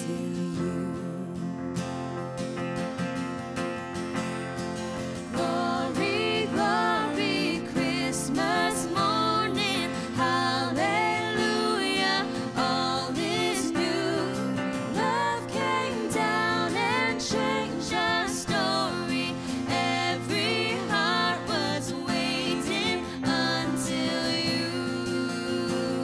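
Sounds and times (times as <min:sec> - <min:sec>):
person singing: 0:00.0 - 0:01.8, 0:05.3 - 0:26.0
worship band playing: 0:05.0 - 0:24.8.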